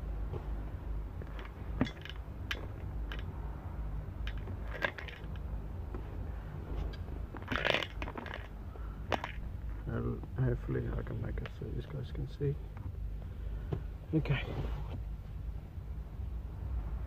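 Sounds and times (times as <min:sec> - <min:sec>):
steady low hum: 0:00.0 - 0:17.0
scraping and rustling: 0:00.2 - 0:03.3, 0:04.2 - 0:09.8.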